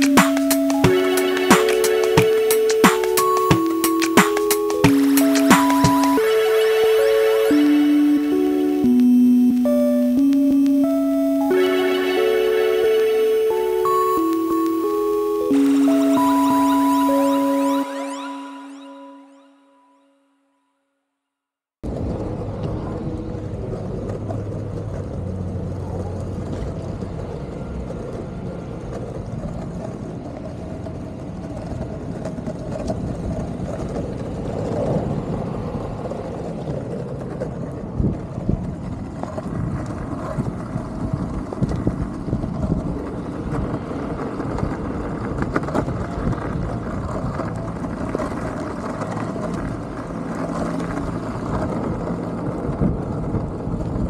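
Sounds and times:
longboard wheels rolling on asphalt: 21.8 - 54.0.

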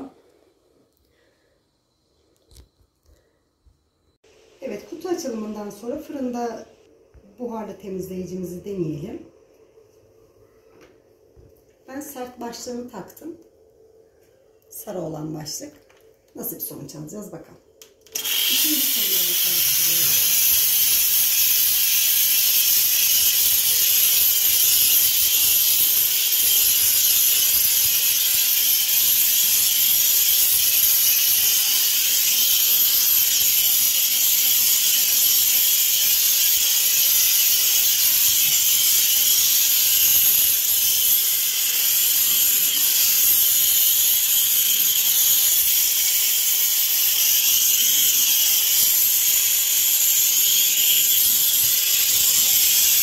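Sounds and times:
steam cleaner hissing: 18.1 - 53.0.

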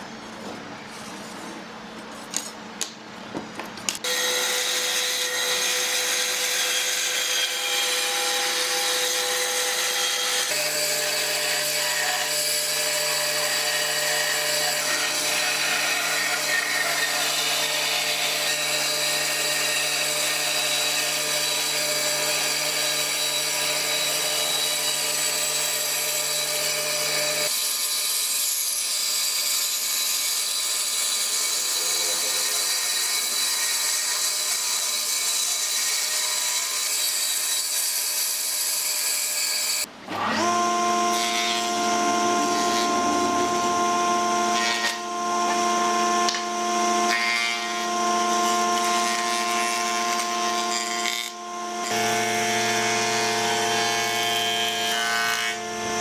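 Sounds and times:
band saw cutting wood: 4.0 - 56.0.

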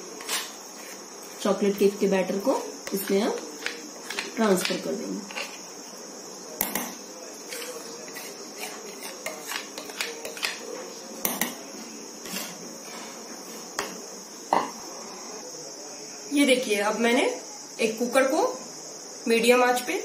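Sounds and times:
utensil scraping a mixing bowl: 2.8 - 4.7, 7.4 - 10.8, 12.2 - 13.2.

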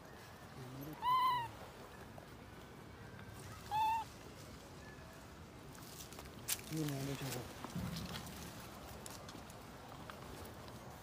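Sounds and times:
monkey coo calls: 0.8 - 1.7, 3.5 - 4.2.

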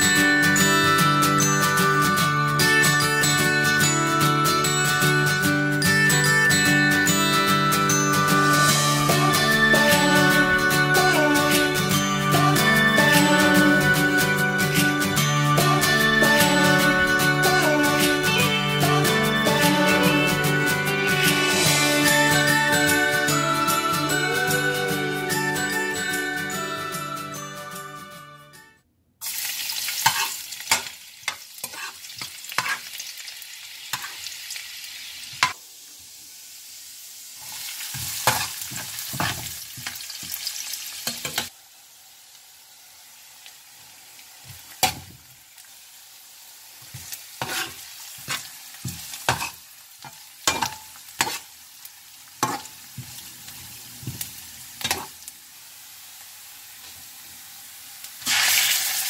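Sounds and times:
food sizzling in hot oil: 29.2 - 59.0
metal spoon scraping a pan: 29.9 - 33.0, 33.9 - 34.2, 37.4 - 40.0, 47.4 - 51.5, 52.4 - 52.7.

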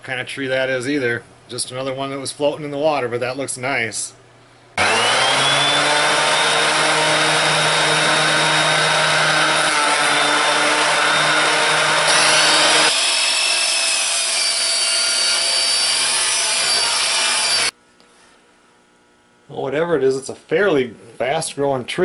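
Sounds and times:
jointer motor whining: 4.8 - 17.7
miter saw cutting wood: 4.8 - 17.7.

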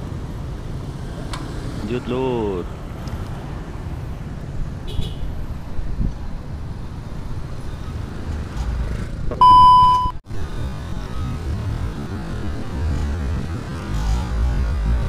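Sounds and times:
road and traffic noise: 0.0 - 15.0
censor bleep: 9.4 - 10.2.

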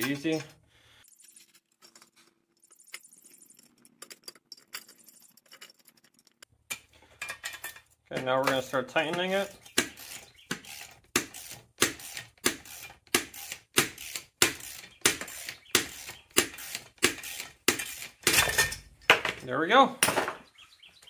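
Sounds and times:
metallic scraping rattle: 0.0 - 0.6.

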